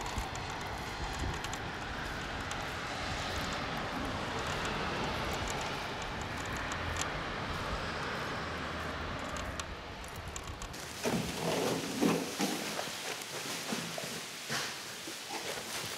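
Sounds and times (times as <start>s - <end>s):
bicycle tyres rolling: 0.0s - 15.9s.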